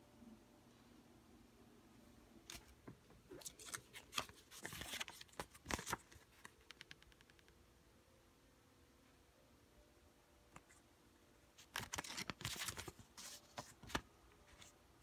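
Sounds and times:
paper banknotes rustling: 3.4 - 6.7, 11.6 - 14.8.

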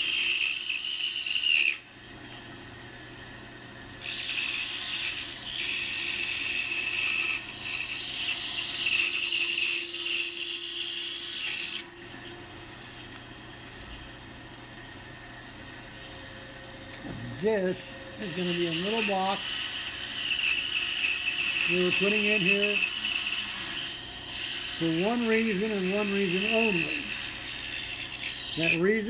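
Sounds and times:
scroll saw cutting wood: 0.0 - 1.9, 4.0 - 11.9, 17.5 - 29.0
low steady hum: 1.7 - 29.0.

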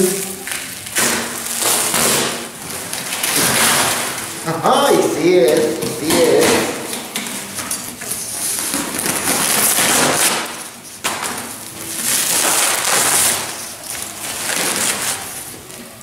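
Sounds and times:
cardboard tearing: 0.0 - 15.8
knife cutting cardboard: 8.5 - 11.4.

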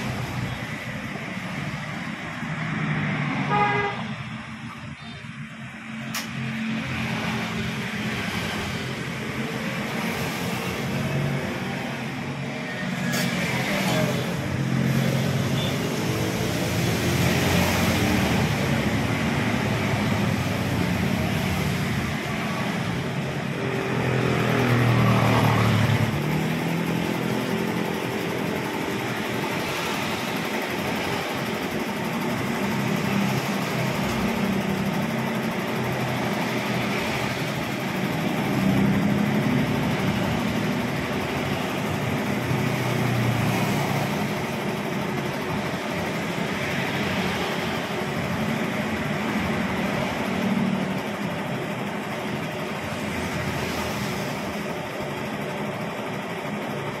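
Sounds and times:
spin dryer motor humming: 13.4 - 57.0.

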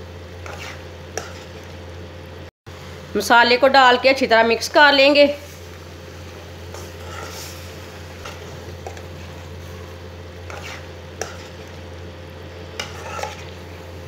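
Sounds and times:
steady low hum: 0.0 - 14.0
food sizzling: 4.5 - 14.0
spoon scraping metal pan: 6.7 - 9.1, 10.5 - 11.7, 12.8 - 13.6.

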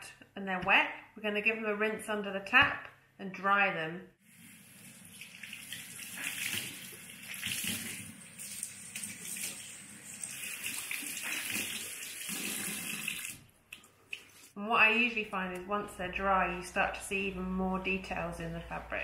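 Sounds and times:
tap water running into sink: 4.3 - 13.4
water splashing over wet cloth: 4.6 - 13.4.

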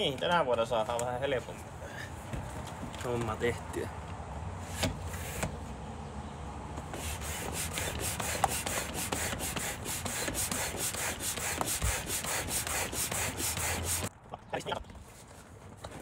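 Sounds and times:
foot air pump strokes: 6.9 - 14.1.

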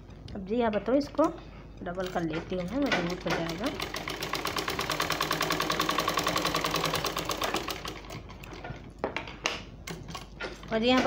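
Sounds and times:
sewing machine stitching: 2.0 - 8.8.

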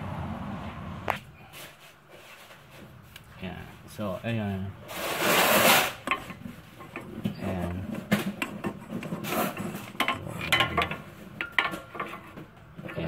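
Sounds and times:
metal tools clinking: 6.0 - 13.0.

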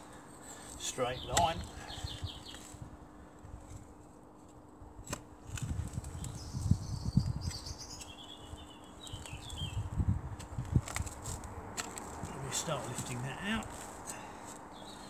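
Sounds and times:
bird chirping: 6.2 - 9.9, 14.7 - 15.0.

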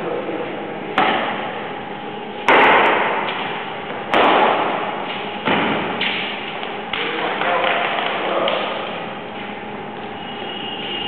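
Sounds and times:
rackets hitting shuttlecock: 2.4 - 8.9.

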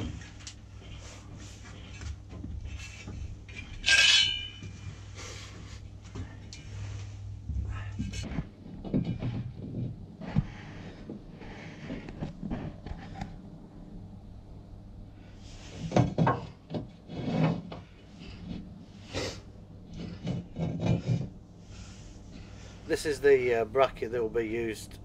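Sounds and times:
low steady hum: 0.0 - 25.0
bracket scraping and knocking: 15.6 - 18.7, 19.9 - 22.5.

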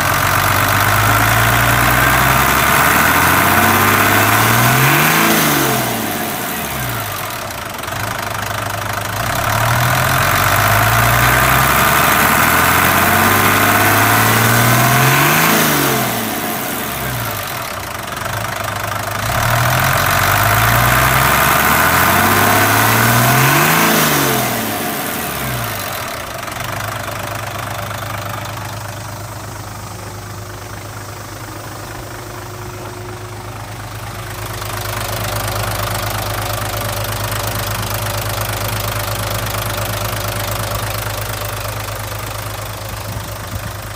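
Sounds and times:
diesel engine revving and idling: 0.0 - 43.9.

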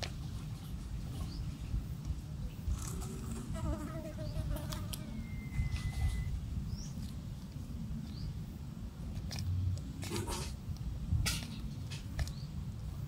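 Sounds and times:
steady low rumble: 0.0 - 13.0
thin whistle-like tone: 5.0 - 6.4.

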